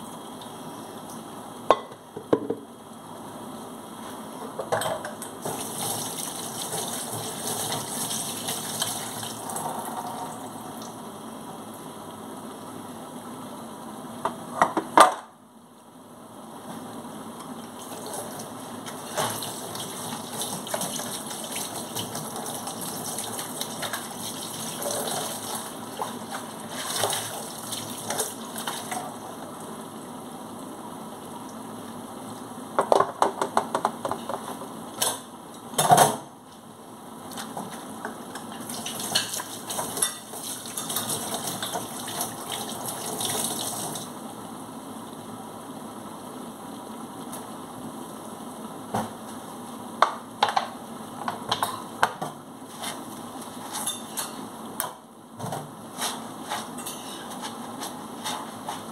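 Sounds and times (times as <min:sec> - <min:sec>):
dishes clinking against sink: 0:04.5 - 0:05.2, 0:38.4 - 0:41.9, 0:51.3 - 0:52.4, 0:53.7 - 0:54.4, 0:56.8 - 0:57.4.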